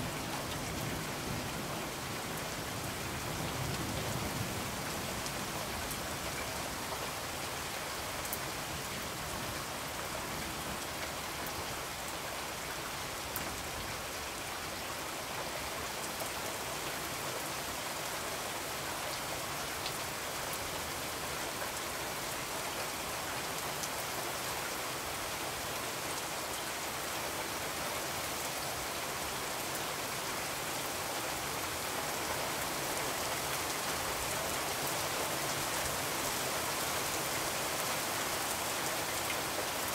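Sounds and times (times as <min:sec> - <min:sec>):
steady rain: 0:00.0 - 0:39.9.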